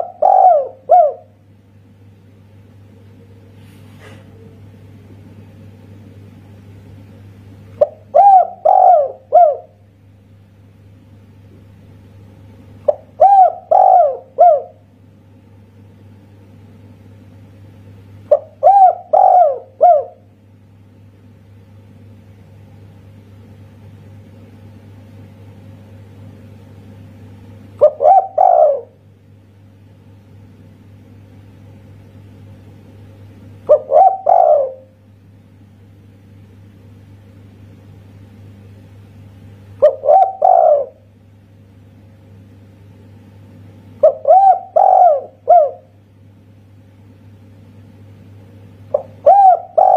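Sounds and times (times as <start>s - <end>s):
dove cooing: 0.0s - 1.4s, 7.8s - 9.8s, 12.8s - 14.8s, 18.3s - 20.3s, 27.8s - 29.0s, 33.7s - 35.0s, 39.8s - 41.1s, 44.0s - 46.0s, 48.9s - 49.9s.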